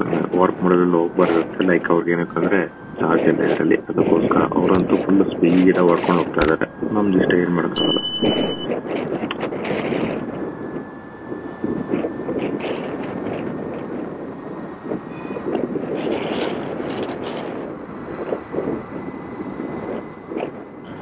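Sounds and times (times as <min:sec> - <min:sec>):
faint high whine: 0:00.0 - 0:20.2
wind buffeting microphone: 0:00.0 - 0:21.0
scooter road noise: 0:09.7 - 0:21.0.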